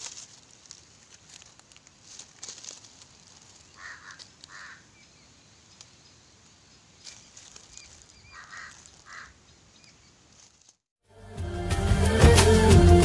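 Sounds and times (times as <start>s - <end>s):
rustles in dry leaf litter: 0.0s - 10.9s
harsh animal calls: 3.8s - 4.9s, 8.2s - 9.4s.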